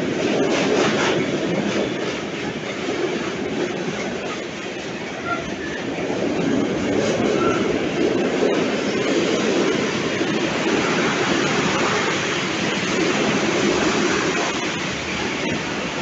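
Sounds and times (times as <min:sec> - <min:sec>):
freight train wheels rumbling: 0:00.0 - 0:16.0.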